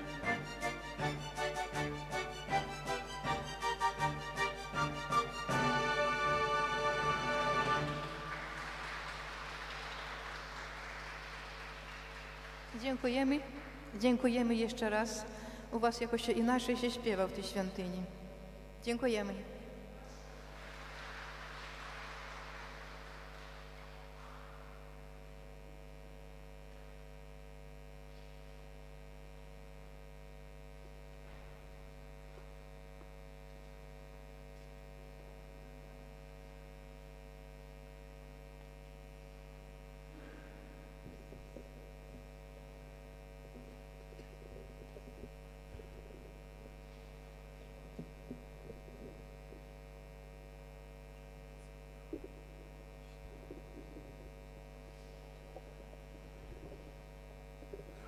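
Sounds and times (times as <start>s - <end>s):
electrical mains hum: 0.0s - 58.0s.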